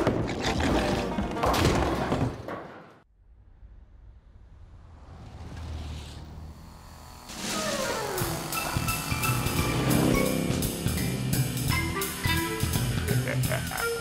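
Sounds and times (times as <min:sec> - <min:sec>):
music: 0:07.3 - 0:14.0.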